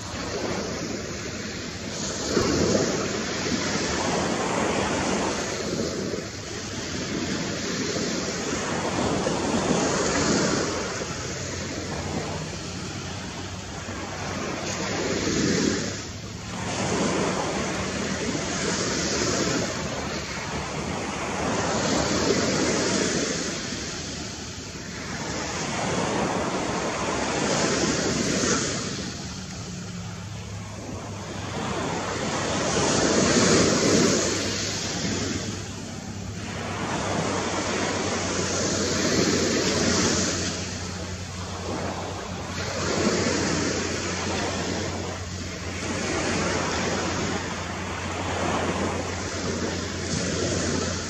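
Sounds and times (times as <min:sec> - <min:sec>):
ocean surf breaking: 0:00.0 - 0:51.0.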